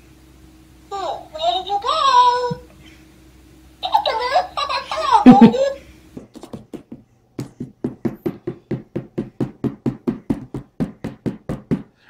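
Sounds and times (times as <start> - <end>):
rapid sharp taps: 6.2 - 12.0.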